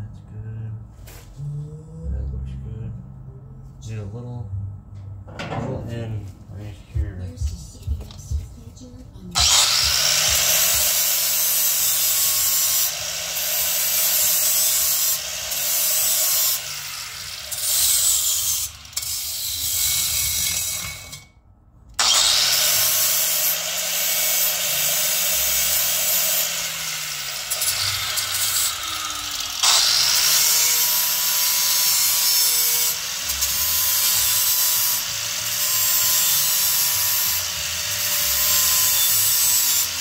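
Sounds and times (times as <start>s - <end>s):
angle grinder grinding metal: 9.4s - 21.3s, 22.0s - 40.0s.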